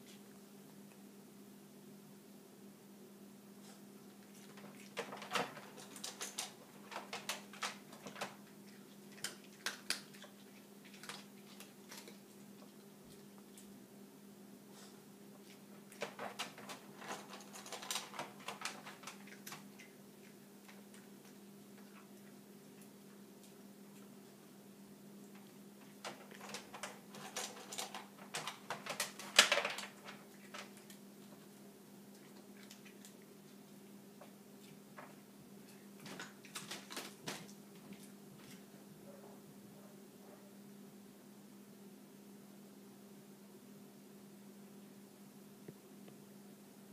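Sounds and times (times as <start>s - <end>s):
faint steady hum: 0.0s - 46.9s
dog crunching dry kibble: 4.2s - 13.7s, 15.5s - 24.1s, 25.3s - 31.5s, 32.1s - 38.7s.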